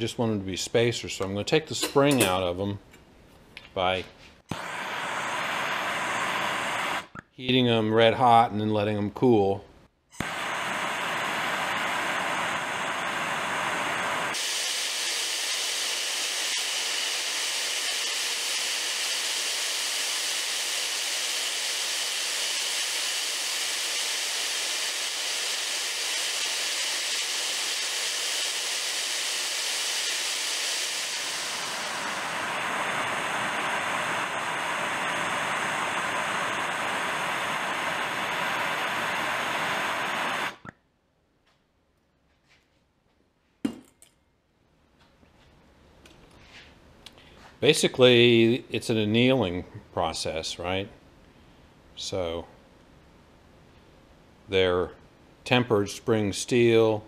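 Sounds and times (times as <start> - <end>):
gas torch flame hissing: 4.4 - 7.2, 10.2 - 40.7.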